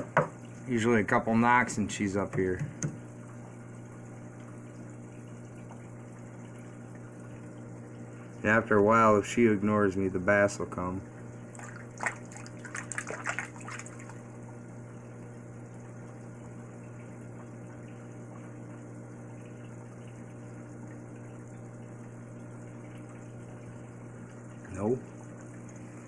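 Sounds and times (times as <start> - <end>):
flowing water: 0.0 - 26.0
water pump humming: 0.0 - 26.0
hand splashing water: 11.5 - 14.3.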